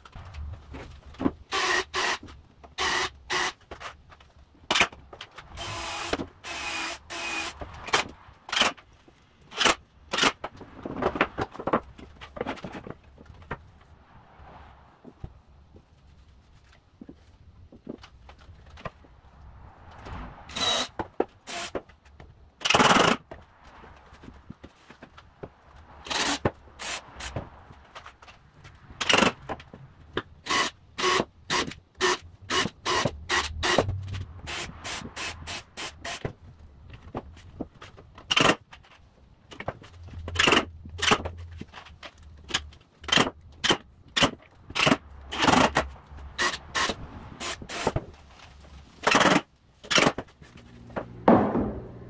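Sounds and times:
drill boring into wood: 1.5 - 2.2, 2.8 - 3.6, 5.6 - 7.6, 20.5 - 20.9, 21.5 - 21.8, 30.4 - 33.8, 46.4 - 48.0.

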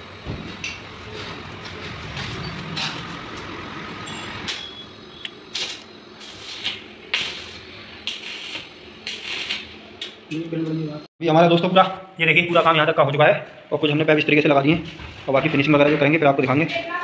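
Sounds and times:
metal knocks and scrapes: 0.2 - 3.5.

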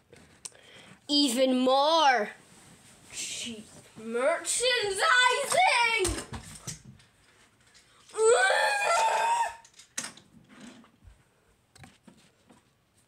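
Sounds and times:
shrill rising cry: 8.2 - 9.7.

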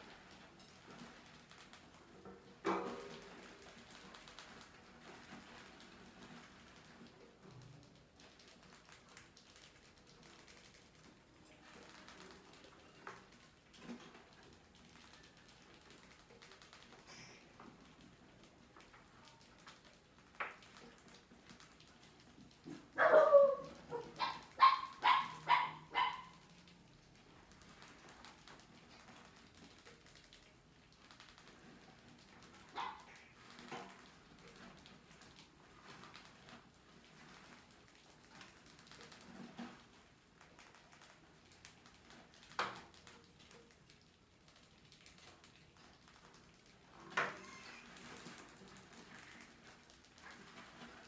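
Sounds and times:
mice scrabbling on plastic and wire: 0.0 - 51.0
dog barking: 23.0 - 26.4, 32.8 - 33.1.

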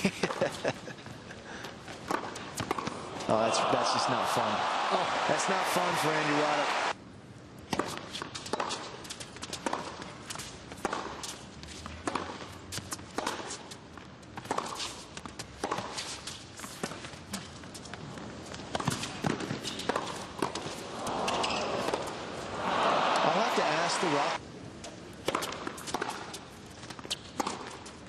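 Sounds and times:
racket hitting tennis ball: 2.1 - 3.4, 7.7 - 11.4, 15.6 - 16.0, 18.7 - 24.4, 25.2 - 27.8.

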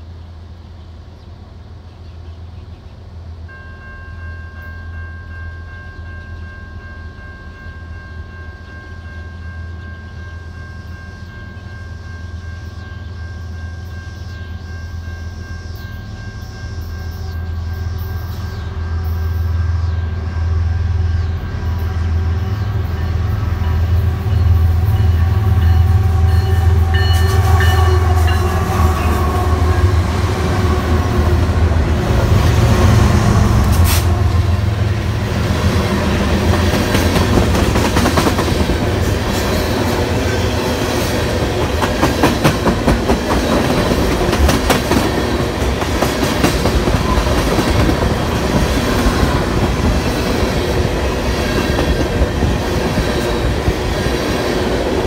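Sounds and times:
locomotive engine rumble: 0.0 - 55.0
train horn chord: 10.5 - 31.7.

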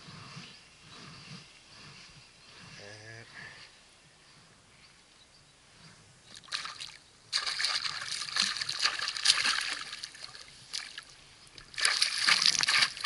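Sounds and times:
fish thrashing and splashing: 6.4 - 13.0.

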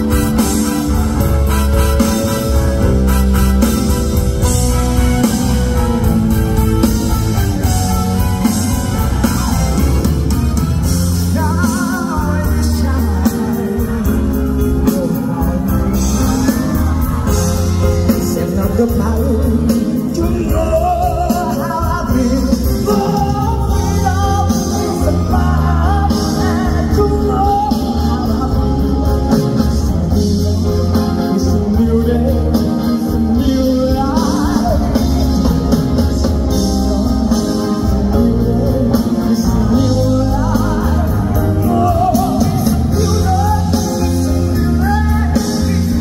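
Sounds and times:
live pop-rock song: 0.0 - 46.0
man singing: 10.8 - 46.0.

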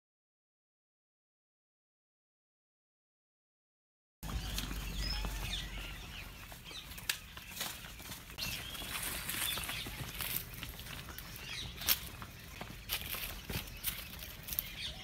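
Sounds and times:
birds chirping: 4.2 - 15.0
footsteps on dirt path: 4.2 - 15.0.

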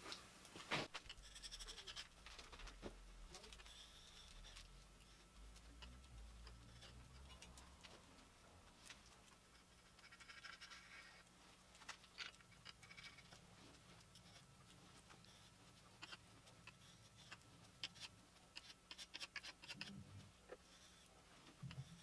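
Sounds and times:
scraper scratching metal: 1.0 - 2.2.

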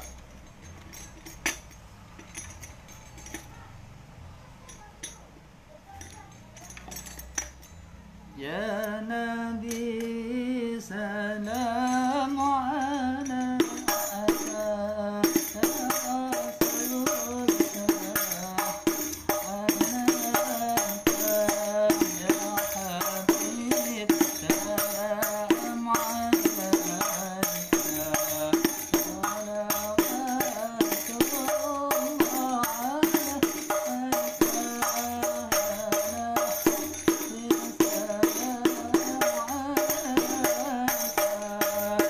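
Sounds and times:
person singing: 8.3 - 42.0
frame drum struck by hand: 13.5 - 42.0.

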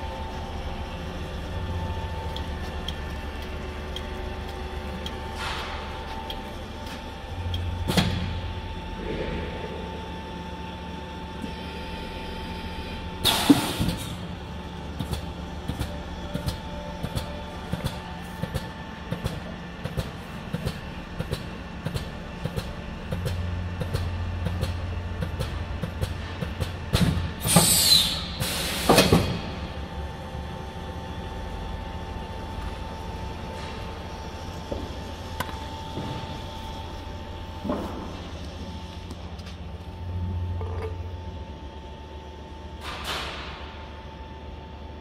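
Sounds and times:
vacuum pump hum: 0.0 - 42.8
pneumatic hisses: 13.2 - 14.2, 27.4 - 29.3
air hissing burst: 27.4 - 29.2.

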